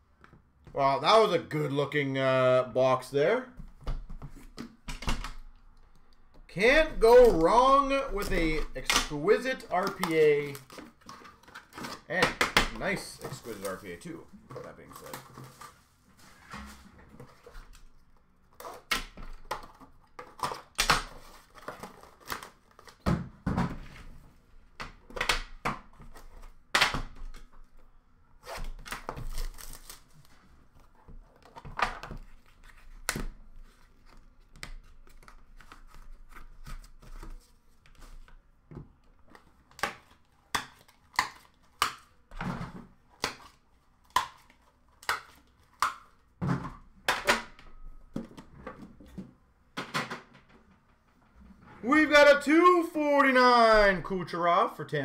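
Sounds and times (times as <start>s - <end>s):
cards being handled: 6.6s - 15.8s
wrapping tearing and crinkling: 7.1s - 12.1s, 28.5s - 30.4s.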